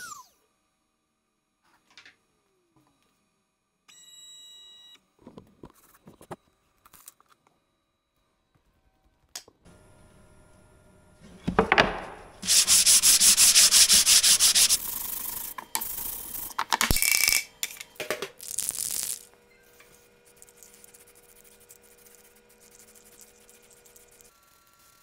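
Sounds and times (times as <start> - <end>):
sanding sponge rubbing wood: 12.4 - 15.6, 20.2 - 25.0.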